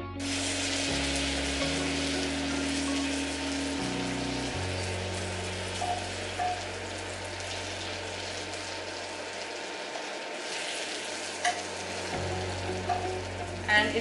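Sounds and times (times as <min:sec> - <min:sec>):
food sizzling in a frying pan: 0:00.2 - 0:14.0.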